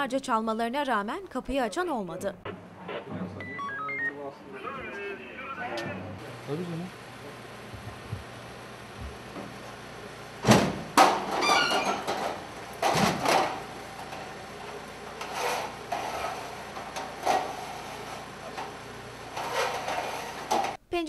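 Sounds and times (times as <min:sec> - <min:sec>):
metal ladder clanking and rattling: 0:11.0 - 0:14.2.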